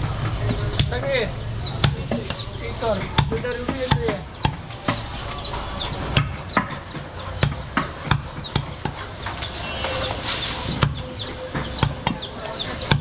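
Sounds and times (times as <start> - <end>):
birds chirping: 0.0 - 13.0
knife chopping meat on wood: 1.8 - 5.0, 6.0 - 9.1, 10.7 - 13.0.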